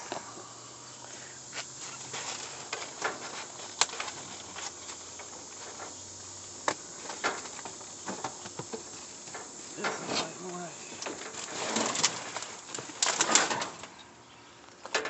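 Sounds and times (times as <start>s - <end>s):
faint steady hiss: 0.0s - 15.0s
plastic bags rustling: 1.7s - 6.0s, 6.8s - 14.0s.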